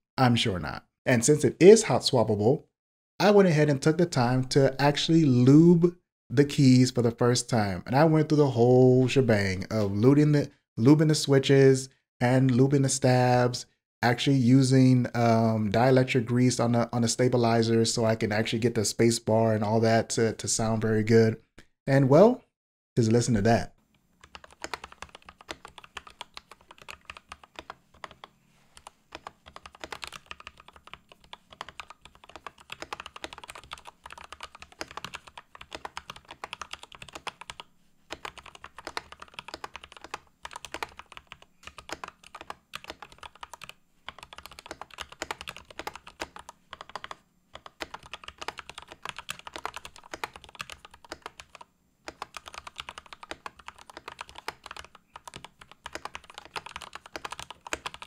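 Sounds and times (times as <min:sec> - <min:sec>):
mechanical keyboard typing: 0:24.2 - 0:58.0.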